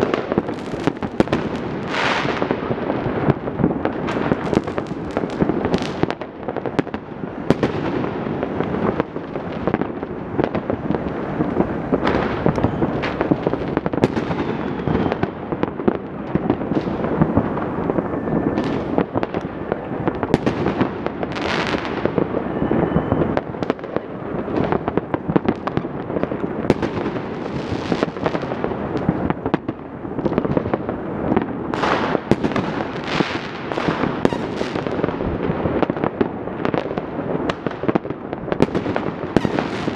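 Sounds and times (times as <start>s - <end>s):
fireworks bangs and pops: 0.0s - 39.9s
firework whistles: 11.1s - 15.6s, 16.7s - 24.1s, 31.8s - 35.1s, 39.3s - 39.9s.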